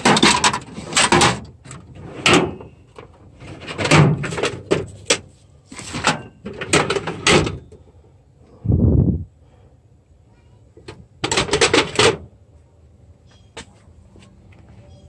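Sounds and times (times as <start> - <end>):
metal drawers clattering: 0.0 - 7.7, 11.2 - 12.3.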